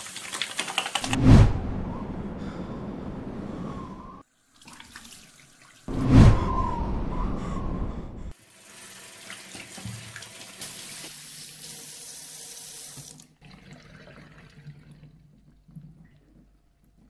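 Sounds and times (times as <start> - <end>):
tap running into washbasin: 9.0 - 13.2.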